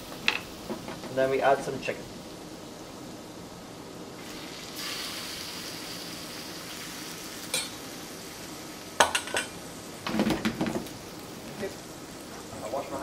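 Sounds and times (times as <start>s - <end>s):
chicken sizzling in hot oil: 4.0s - 13.0s.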